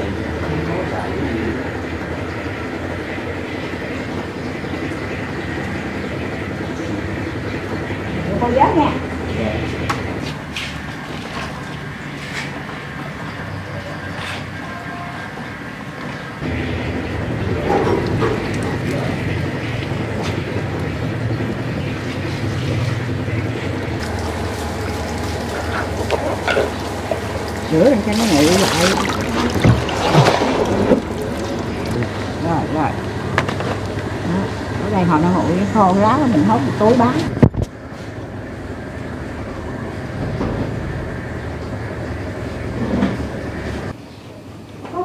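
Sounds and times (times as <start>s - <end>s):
machinery rumbling: 0.0s - 44.0s
low mechanical hum: 0.0s - 45.0s
water running and splashing: 23.8s - 34.0s.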